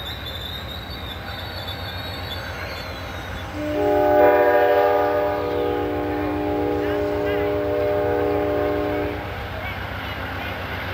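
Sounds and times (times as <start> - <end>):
train rumbling: 0.0 - 10.9
train horn chord: 3.6 - 9.3.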